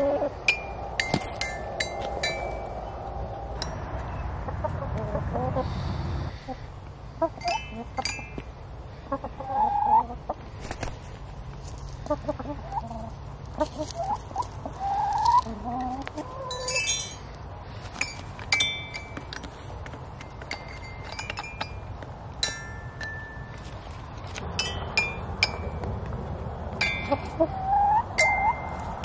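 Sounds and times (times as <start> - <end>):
hens clucking: 0.0 - 8.1, 8.9 - 16.8, 26.8 - 29.0.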